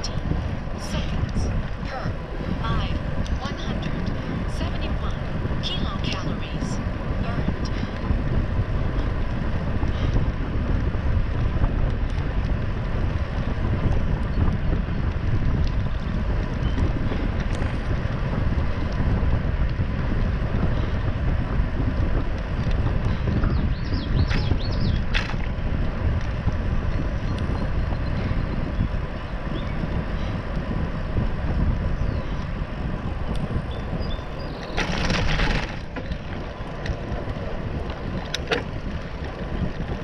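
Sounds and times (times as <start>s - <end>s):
wind rushing over microphone: 0.0s - 40.0s
tyres rolling over crushed stone: 34.7s - 37.1s.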